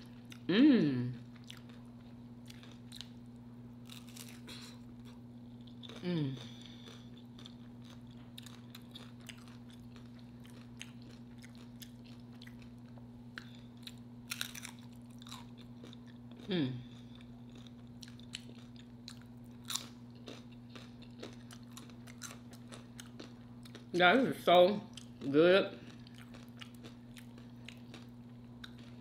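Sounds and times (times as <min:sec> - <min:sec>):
chewing and crunching chips: 0:00.0 - 0:29.0
steady low hum: 0:00.0 - 0:29.0
hummed voice sound: 0:00.4 - 0:01.3, 0:06.0 - 0:06.8, 0:16.4 - 0:16.9.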